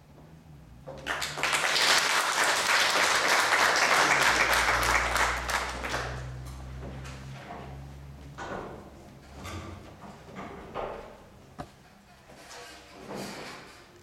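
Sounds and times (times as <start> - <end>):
audience applauding: 1.0 - 6.4.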